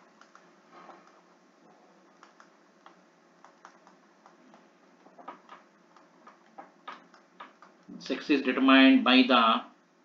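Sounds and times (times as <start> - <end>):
stylus tapping on tablet screen: 2.2 - 7.9.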